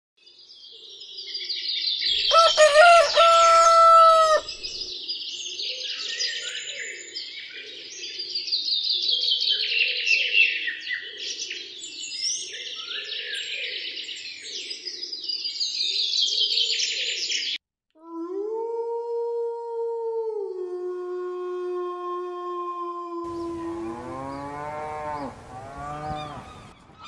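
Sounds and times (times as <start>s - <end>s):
songbirds chirping: 0.2s - 17.6s, 23.3s - 27.0s
rooster crowing: 2.2s - 4.8s, 23.3s - 26.7s.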